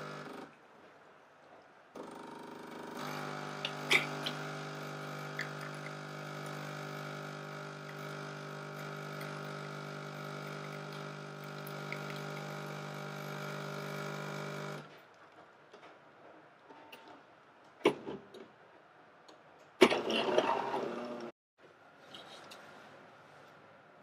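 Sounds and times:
espresso machine pump humming: 0.0 - 0.5, 2.0 - 14.9.

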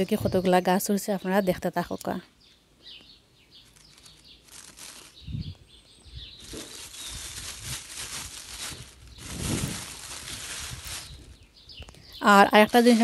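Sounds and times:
plastic bag crinkling: 3.6 - 5.6, 6.2 - 11.5, 12.2 - 13.0.

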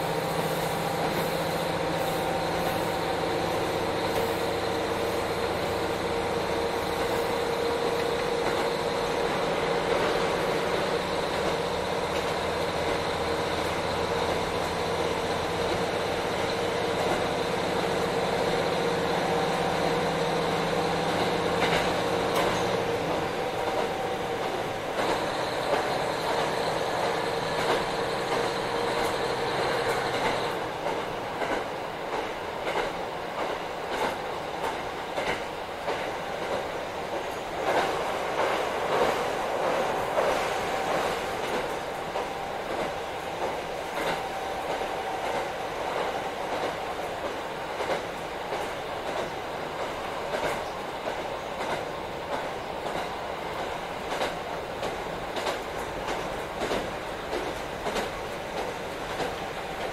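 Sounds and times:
wheels on rail: 0.0 - 59.9
wheel clicks on rail joints: 21.2 - 22.8, 23.6 - 59.9.

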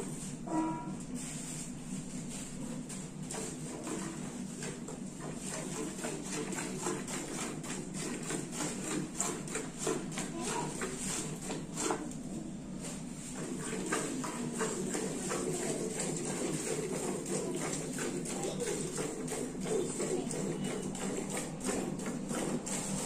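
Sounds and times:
milk squirting into metal bucket: 13.4 - 23.0.

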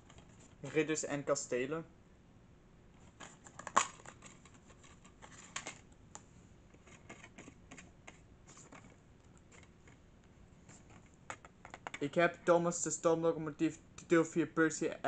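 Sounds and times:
plastic case clicking and rattling: 3.2 - 5.8, 10.9 - 12.0.

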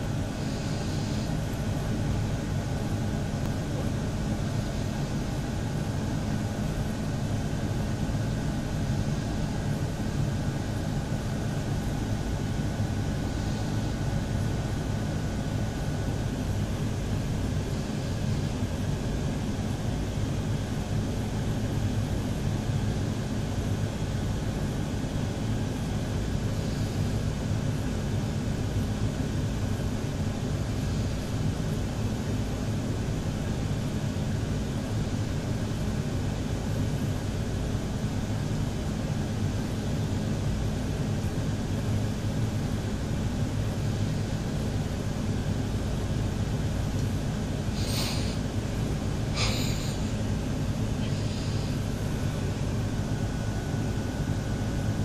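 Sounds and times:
faint thin whine: 0.0 - 19.5, 41.6 - 55.0
low mechanical hum and rumble: 0.0 - 55.0.

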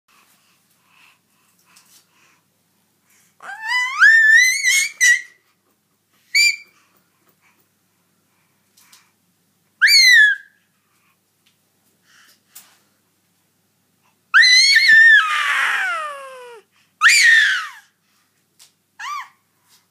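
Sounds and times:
baby squealing: 3.4 - 5.4, 9.8 - 10.5, 14.4 - 17.8, 19.0 - 19.4.

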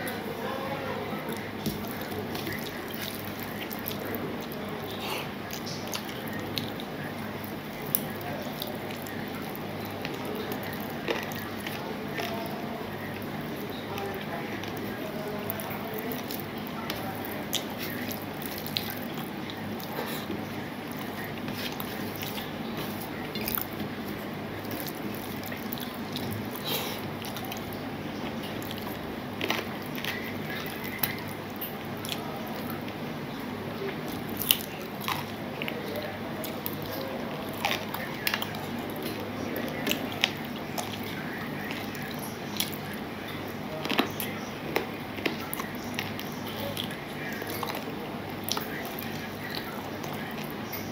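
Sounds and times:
steady low hum: 0.0 - 50.9
chewing and mouth smacks: 1.3 - 33.0, 33.8 - 50.9.

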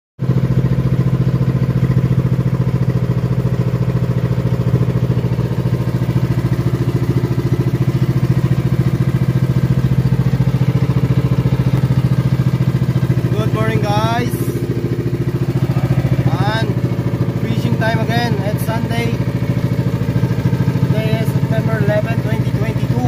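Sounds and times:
boat engine throbbing: 0.2 - 23.0.

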